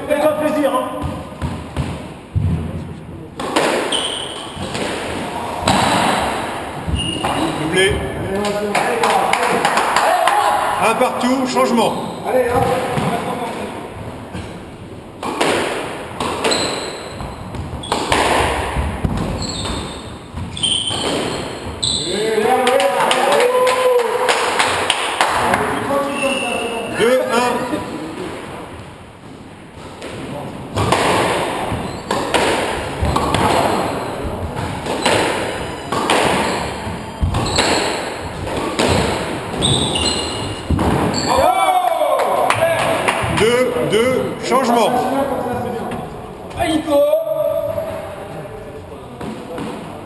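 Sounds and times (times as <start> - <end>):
squash ball hitting walls: 0.8 - 10.4, 14.3 - 25.8, 29.5 - 43.9, 49.1 - 50.0
racquets striking ball: 0.9 - 2.7, 3.4 - 10.1, 15.2 - 22.0, 29.7 - 41.5.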